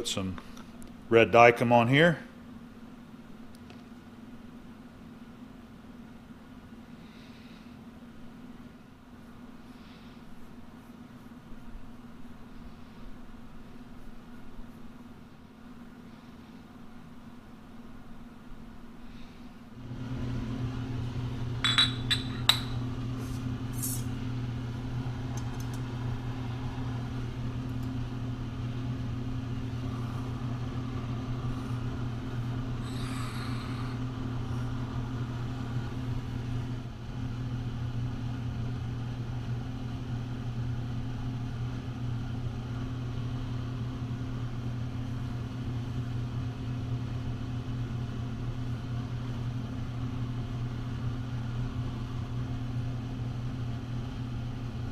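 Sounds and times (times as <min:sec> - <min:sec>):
low machine hum: 0:00.0 - 0:54.9.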